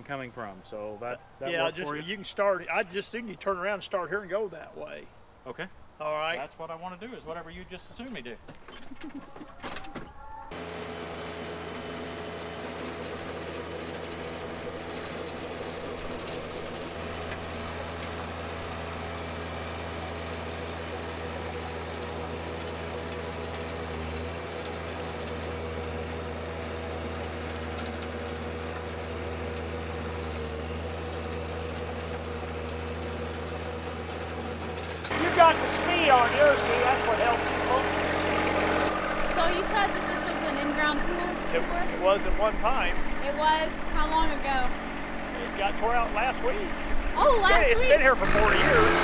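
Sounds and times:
tractor diesel engine under load: 0:10.5 - 0:49.0.

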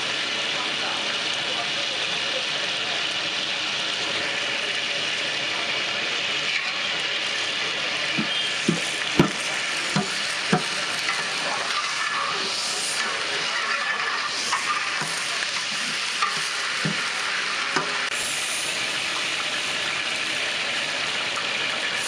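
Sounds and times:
ladle stirring water in pot: 0:08.1 - 0:18.0
ladle knocking against pot: 0:08.2 - 0:10.7.

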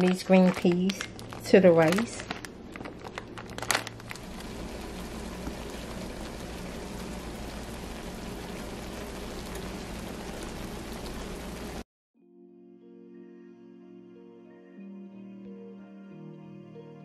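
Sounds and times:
plastic bag crinkling: 0:00.0 - 0:06.5
vegetables sizzling in a pan: 0:03.9 - 0:11.8.

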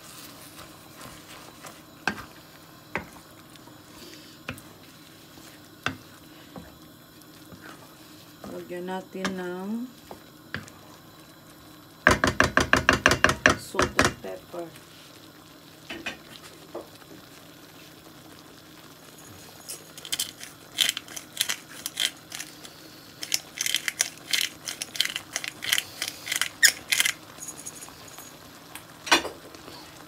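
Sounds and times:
pepper grinder crunching: 0:20.0 - 0:27.5.

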